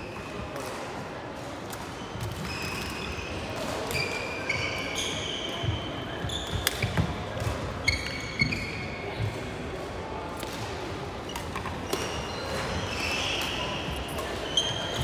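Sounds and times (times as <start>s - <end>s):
racket hitting shuttlecock: 6.6s - 7.7s.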